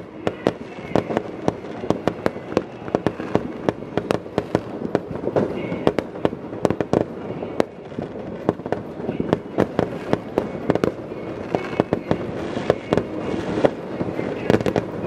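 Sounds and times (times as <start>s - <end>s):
fireworks exploding: 0.0s - 15.0s
steady background noise: 0.0s - 15.0s.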